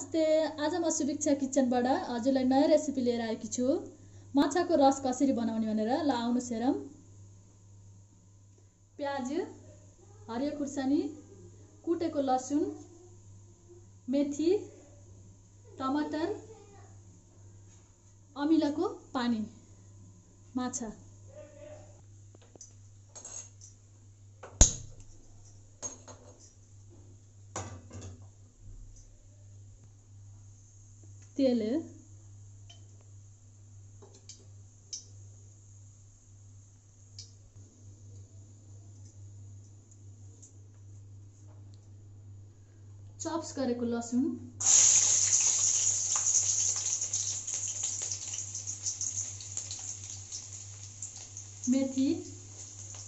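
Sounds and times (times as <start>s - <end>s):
garlic sizzling in hot oil: 44.6s - 53.0s.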